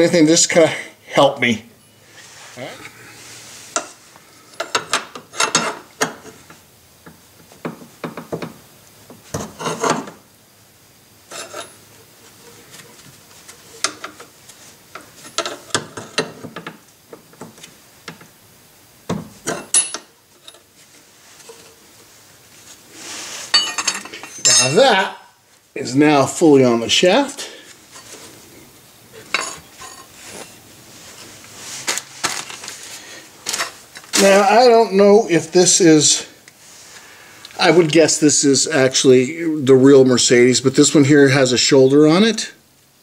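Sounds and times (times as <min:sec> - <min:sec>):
metallic clinks and scraping: 0:11.3 - 0:11.9, 0:19.4 - 0:20.7, 0:23.4 - 0:24.9, 0:29.2 - 0:30.6.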